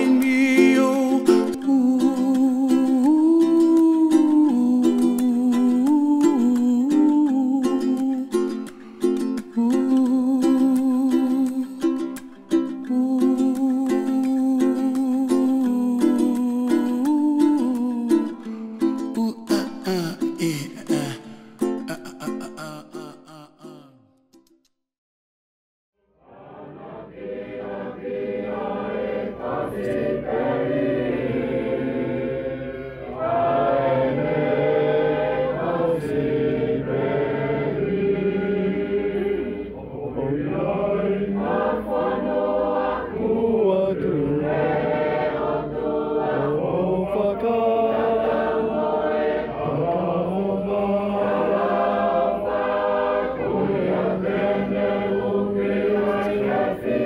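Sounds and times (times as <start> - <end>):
choir singing a slow hymn: 26.2 - 57.0.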